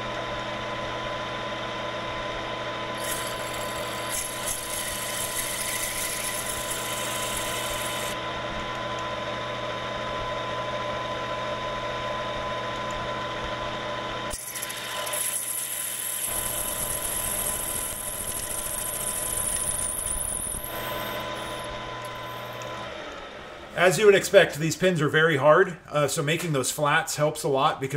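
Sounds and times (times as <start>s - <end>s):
steady motor hum: 0.0s - 25.0s
drill cutting metal on lathe: 2.9s - 8.2s, 14.3s - 23.7s.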